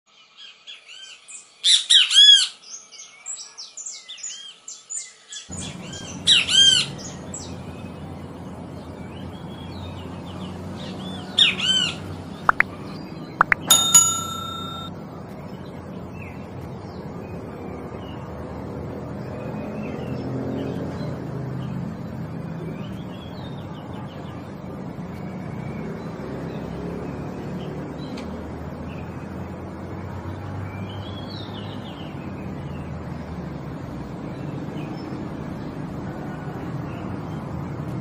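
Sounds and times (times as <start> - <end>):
steady ringing tone: 13.4 - 14.9.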